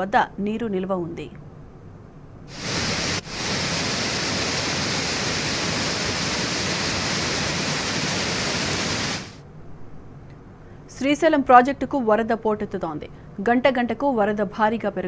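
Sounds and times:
floodwater rushing: 2.5s - 9.4s.

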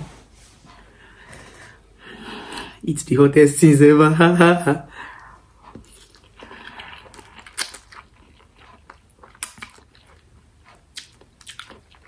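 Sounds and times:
person chewing: 5.1s - 12.0s.

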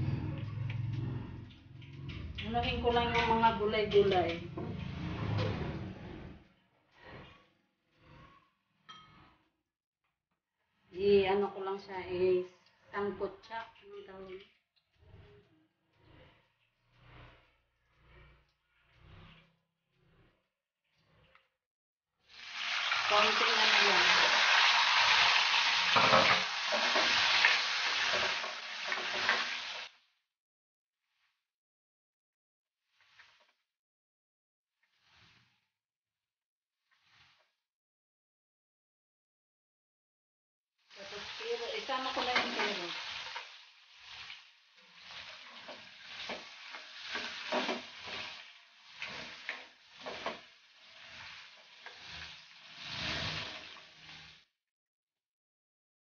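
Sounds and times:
spatula scraping and knocking pan: 1.7s - 9.4s, 24.2s - 29.9s, 41.2s - 54.4s
vegetables sizzling in oil: 22.3s - 30.0s, 40.9s - 54.4s.

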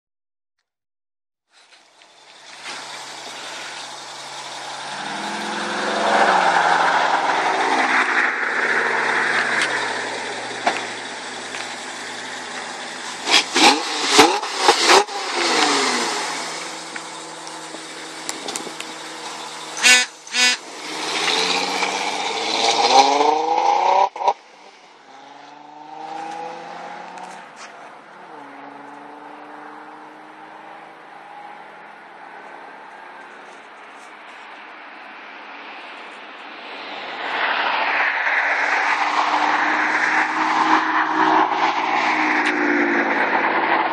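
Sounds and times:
car exhaust revving: 2.1s - 24.4s, 38.0s - 43.9s
short sharp exhaust bursts: 19.8s - 20.6s.

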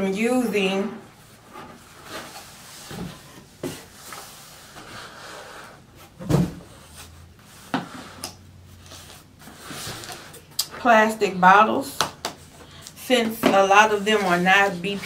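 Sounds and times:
cardboard boxes scraping: 0.6s - 10.4s.

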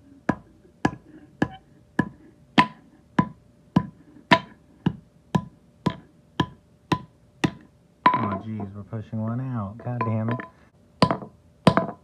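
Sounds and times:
wood-block-like clicks beat: 0.3s - 8.4s.

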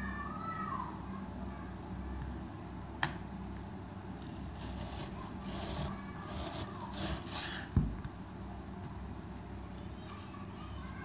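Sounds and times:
knife sawing through meat: 4.3s - 7.7s.

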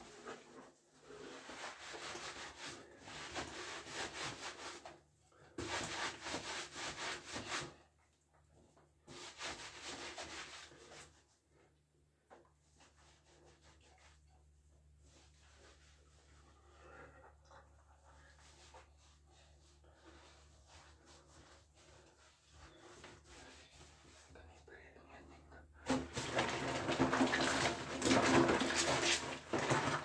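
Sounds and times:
washcloth scrubbing skin: 0.0s - 5.0s, 12.5s - 24.4s, 25.9s - 30.0s.

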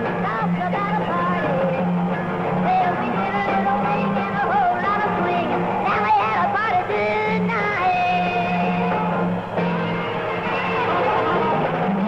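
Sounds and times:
woman singing lead: 0.0s - 1.9s, 2.6s - 9.0s
rock and roll band playing live: 0.0s - 12.0s.

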